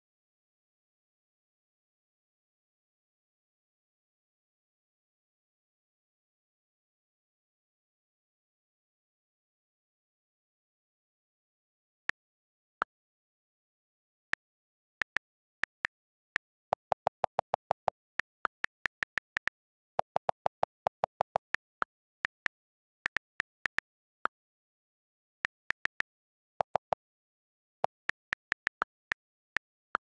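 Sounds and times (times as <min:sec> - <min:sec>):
keyboard typing clicks: 0:14.4 - 0:24.6, 0:25.5 - 0:27.1, 0:27.8 - 0:30.0.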